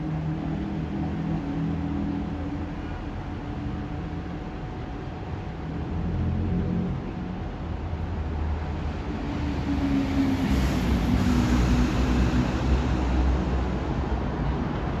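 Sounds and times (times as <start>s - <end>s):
train wheels rumbling on rails: 8.8s - 15.0s.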